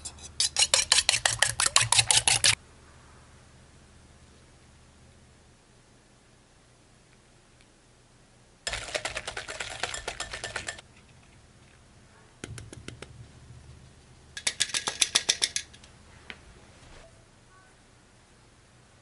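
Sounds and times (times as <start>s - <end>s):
sieve rattling against metal bowl: 8.7s - 10.8s.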